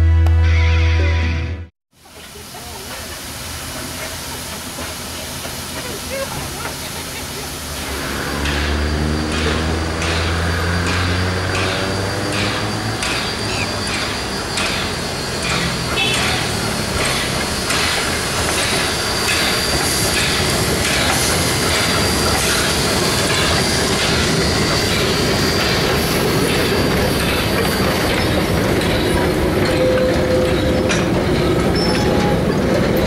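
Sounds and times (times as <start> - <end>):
steam locomotive chuffing: 2.0 - 33.0
train wheel clicks: 2.2 - 33.0
wheel squeal: 7.8 - 33.0.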